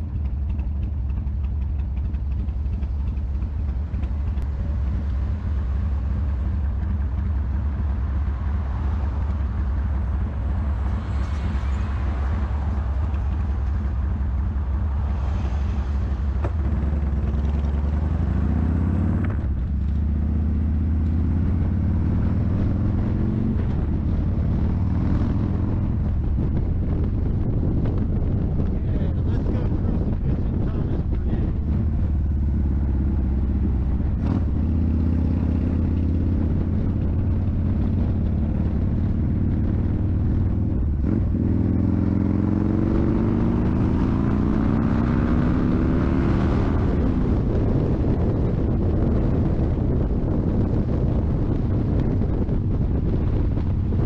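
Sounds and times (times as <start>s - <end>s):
motorcycle engine idling: 0.0s - 15.0s, 30.7s - 38.2s
motorcycle accelerating through gears: 0.0s - 54.0s.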